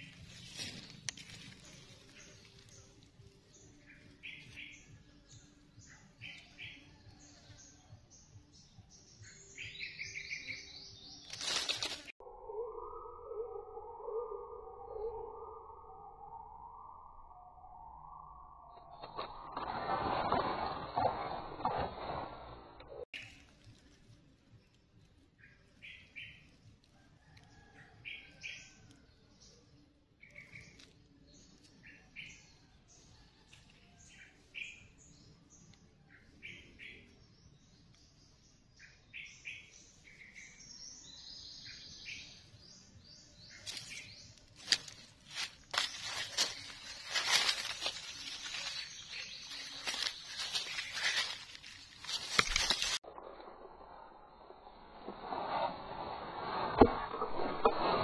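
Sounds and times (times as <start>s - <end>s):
birds chirping: 0.0s - 16.4s, 33.9s - 53.0s
faint bird chirps: 0.0s - 19.4s.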